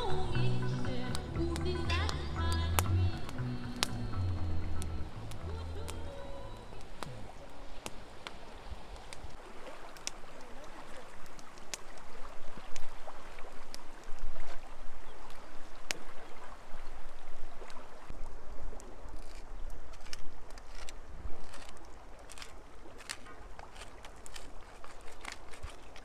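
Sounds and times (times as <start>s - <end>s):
river water flowing: 0.0s - 26.0s
sharp clicks and crackles: 19.1s - 26.0s.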